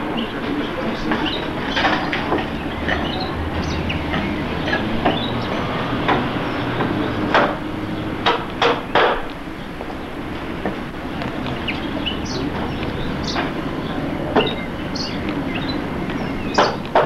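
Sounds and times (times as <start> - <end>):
low background rumble: 0.0 - 17.0
hammer knocking on wood: 8.2 - 9.3.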